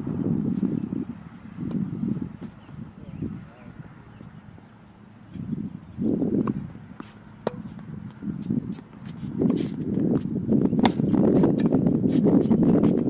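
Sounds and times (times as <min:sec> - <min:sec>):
wind rumbling on microphone: 0:00.0 - 0:13.0
footsteps on court: 0:06.4 - 0:13.0
tennis ball hitting racket: 0:06.4 - 0:13.0.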